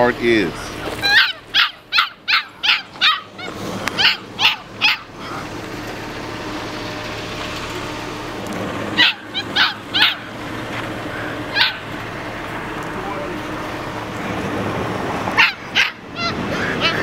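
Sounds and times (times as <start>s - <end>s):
puppy yelping: 0.9s - 5.5s, 9.0s - 10.4s, 11.1s - 12.0s, 15.3s - 17.0s.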